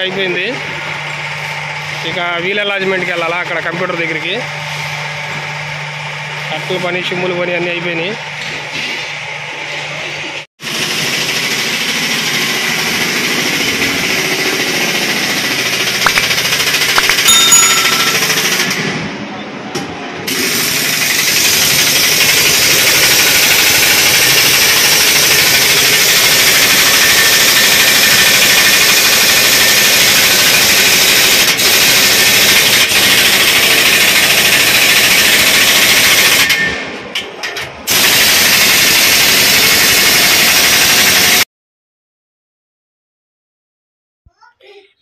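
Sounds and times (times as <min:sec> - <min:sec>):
pneumatic impact wrench hammering: 0:10.7 - 0:18.8, 0:20.3 - 0:41.4.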